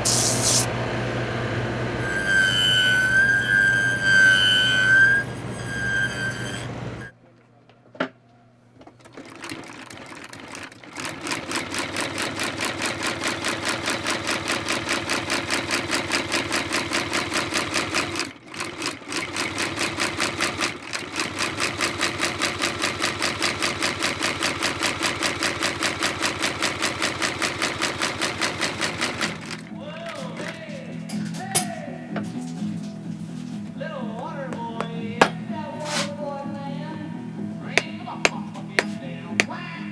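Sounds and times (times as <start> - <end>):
stitching machine clattering: 8.8 - 31.6.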